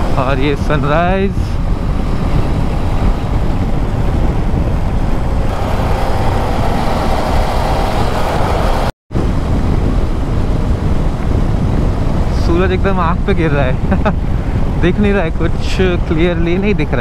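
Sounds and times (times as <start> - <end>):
motorcycle engine and road noise: 0.0 - 17.0
wind rush on microphone: 0.0 - 17.0.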